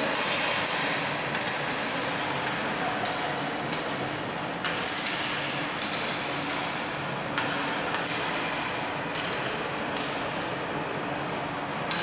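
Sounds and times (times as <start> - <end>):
hockey sticks clacking on ice: 0.0 - 4.0, 9.1 - 10.5
steady low hum: 0.0 - 12.0.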